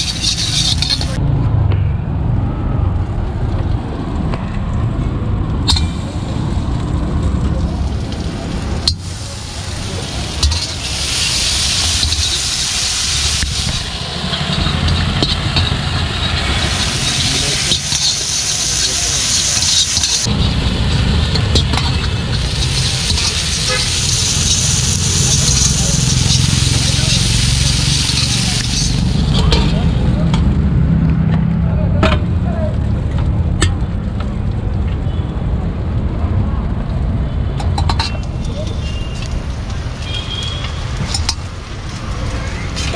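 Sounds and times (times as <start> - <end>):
gas burner roaring: 0.0 - 1.2, 2.8 - 34.9, 39.2 - 42.9
vegetables sizzling in wok: 0.0 - 1.2, 5.7 - 30.6
metal spatula knocking wok: 10.3 - 11.0, 13.3 - 30.5.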